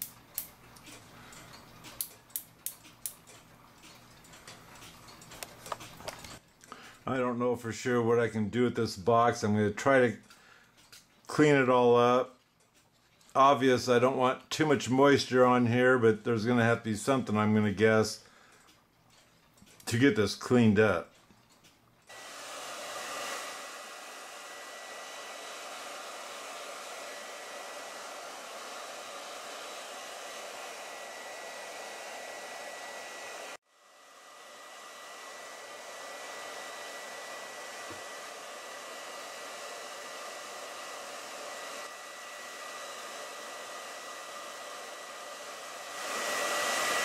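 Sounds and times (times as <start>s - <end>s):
heat gun blowing with whine: 22.1s - 47.0s.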